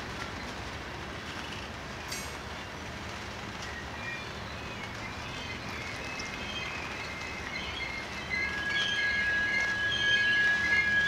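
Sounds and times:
freight train rolling past: 0:00.0 - 0:11.0
high wheel squeal: 0:07.0 - 0:11.0.

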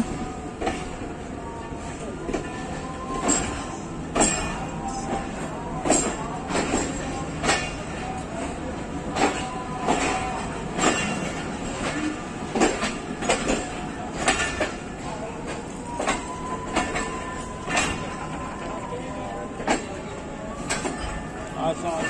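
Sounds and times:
train coach rumbling on track: 0:00.0 - 0:22.0
wheels clacking over rail joints: 0:02.3 - 0:22.0.

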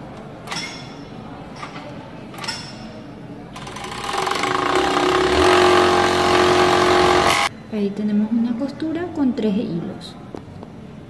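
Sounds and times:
overlock sewing machine running: 0:03.6 - 0:07.5.

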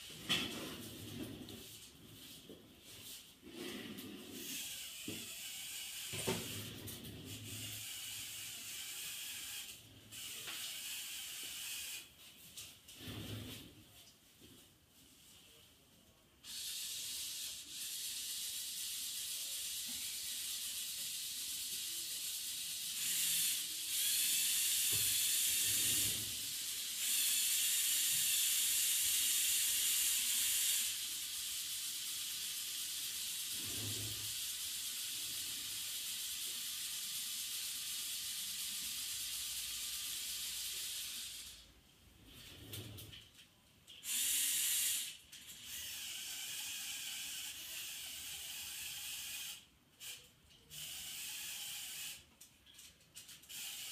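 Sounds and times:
small electric motor whir: 0:04.2 - 0:12.1, 0:16.4 - 0:41.7, 0:44.0 - 0:52.3, 0:53.2 - 0:53.9.

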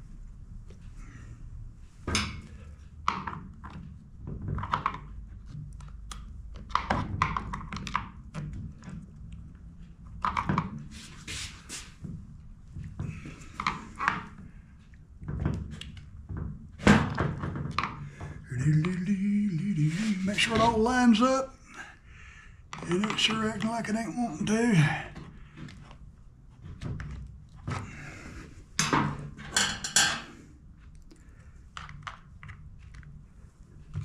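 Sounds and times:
low steady hum: 0:18.0 - 0:34.0.

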